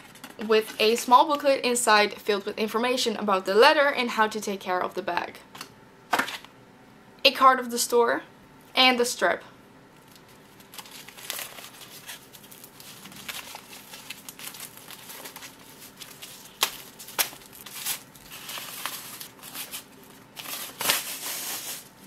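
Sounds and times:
packaging wrap crinkling: 10.0 - 22.0.

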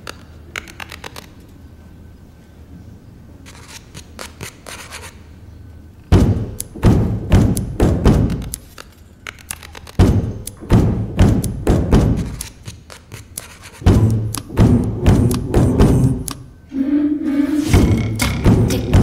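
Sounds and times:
hands thumping on wooden desks: 6.1 - 8.6, 10.0 - 12.4.

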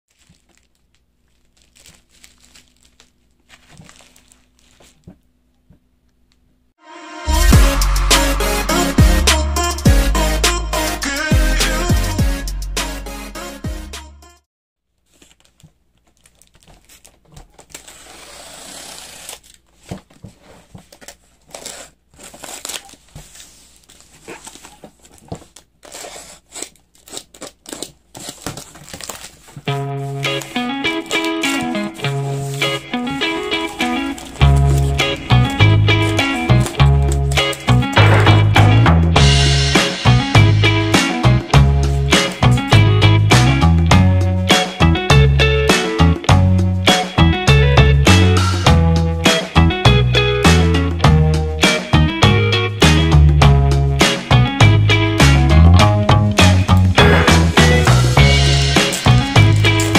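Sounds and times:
plastic packaging crinkling: 0.1 - 5.2, 14.9 - 38.4, 57.0 - 59.9
cardboard scraping and rustling: 15.1 - 38.7.

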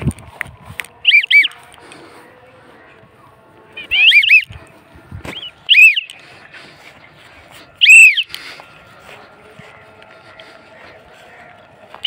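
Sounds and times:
cockatiel whistled calls: 1.0 - 1.5, 3.8 - 4.5, 5.3 - 6.2, 7.8 - 8.3.

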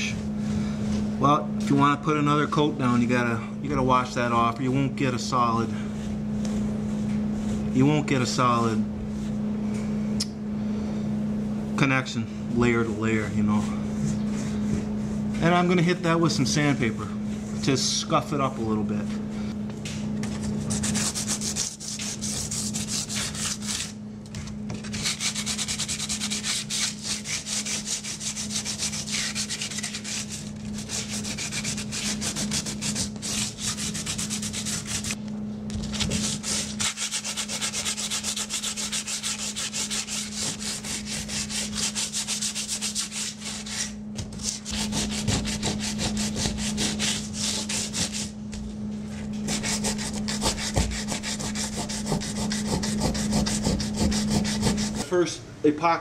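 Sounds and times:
sandpaper rubbing on plastic: 20.3 - 24.0, 24.8 - 35.2, 35.8 - 48.4, 49.5 - 55.0.

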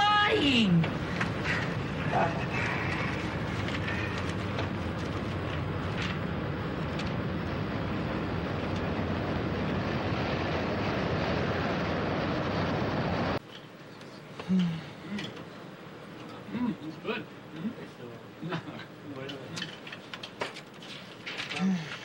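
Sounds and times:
jet engines rushing: 0.0 - 13.4.

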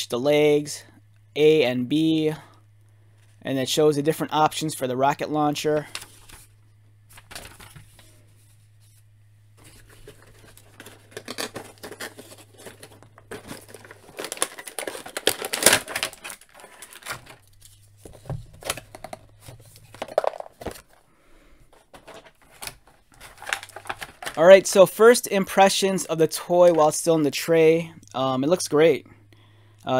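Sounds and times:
cardboard and plastic rustling: 5.6 - 24.8.

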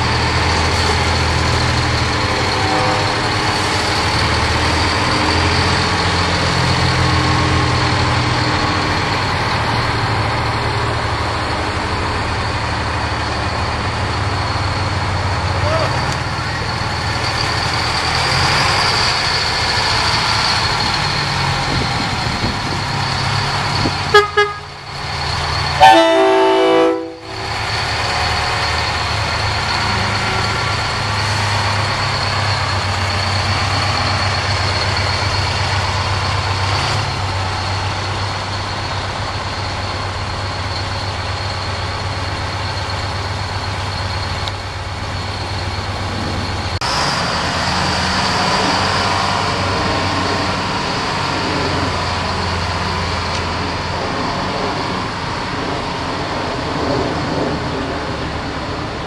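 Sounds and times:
truck diesel engine running: 0.0 - 59.0
air horn blast: 2.6 - 3.2, 24.1 - 24.7, 25.8 - 27.3.

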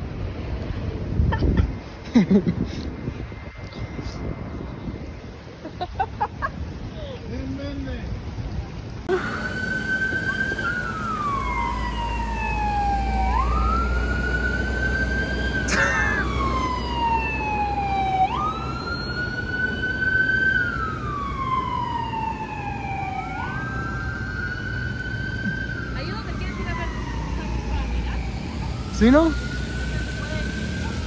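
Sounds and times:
siren wailing: 9.1 - 31.0.

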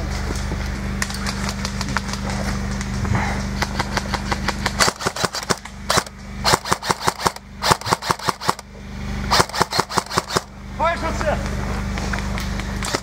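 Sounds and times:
low hum: 0.0 - 13.0
airsoft rifle shots: 3.8 - 8.6, 9.3 - 10.5.

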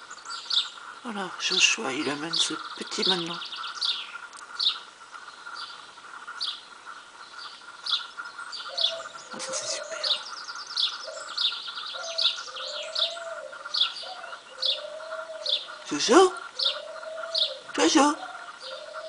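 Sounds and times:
small birds chirping: 0.0 - 19.0
wood pigeon cooing: 8.6 - 19.0.

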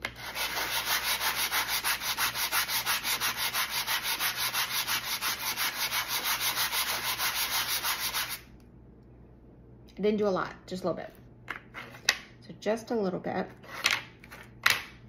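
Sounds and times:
hand sanding wood: 0.0 - 8.4.

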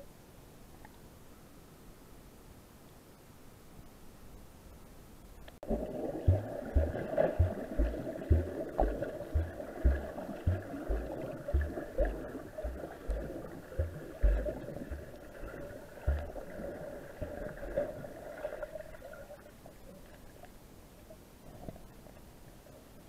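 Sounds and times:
muffled underwater thumps: 5.6 - 18.0.

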